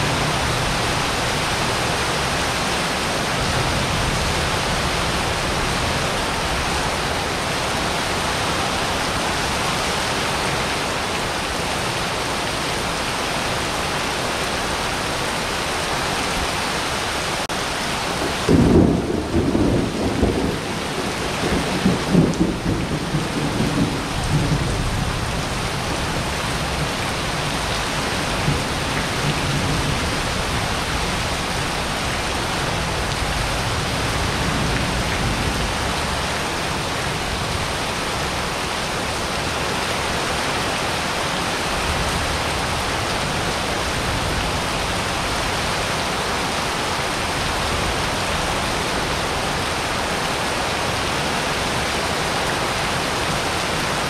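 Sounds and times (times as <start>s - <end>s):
heavy rain on pavement: 0.0s - 54.0s
thunder clap rumbling: 18.1s - 30.8s.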